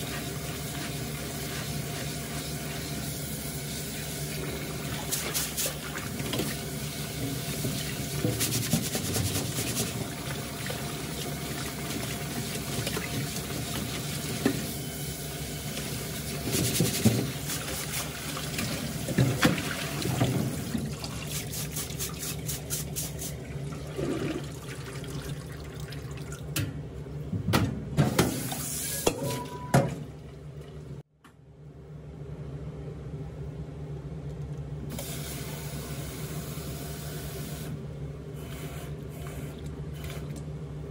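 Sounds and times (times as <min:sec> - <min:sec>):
tap water splashing into sink: 0:16.6 - 0:21.3.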